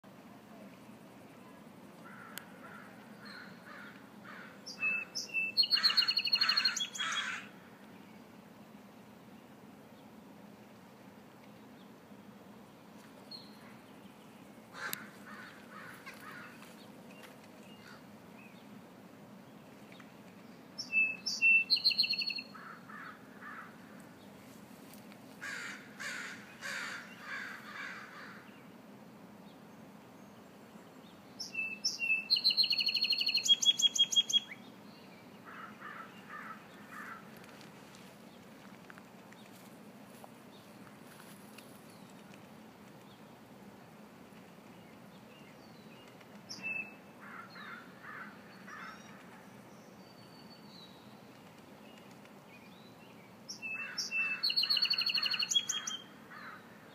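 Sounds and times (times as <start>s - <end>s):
rough low bird calls: 2.0s - 7.6s, 14.7s - 18.1s, 25.4s - 28.5s, 35.4s - 37.4s, 46.5s - 49.6s, 53.5s - 56.9s
songbird singing with buzzy trill: 4.7s - 8.2s, 13.3s - 14.4s, 20.4s - 22.6s, 30.2s - 35.4s, 44.8s - 47.8s, 48.5s - 56.5s.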